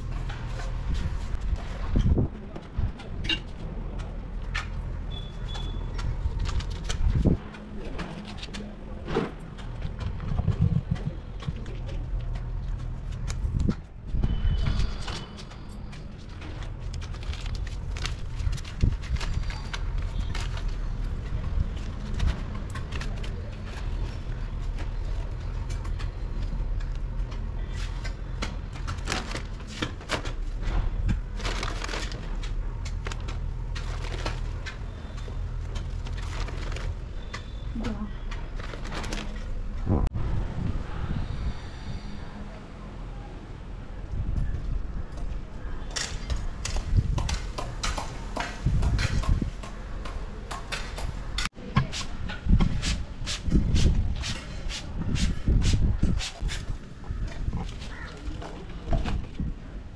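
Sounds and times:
wind rumble on microphone: 0.0s - 3.3s, 6.0s - 7.5s, 9.7s - 15.2s, 39.5s - 42.7s, 43.7s - 50.1s, 50.9s - 59.9s.

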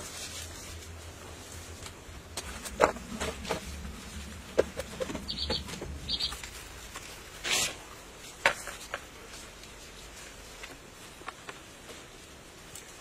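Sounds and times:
short bird chirps: 5.3s - 6.4s.

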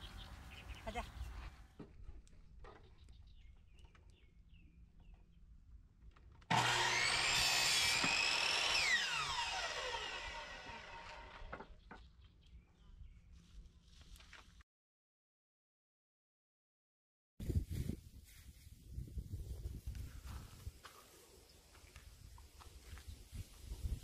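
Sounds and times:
miter saw cutting wood: 6.5s - 11.7s.

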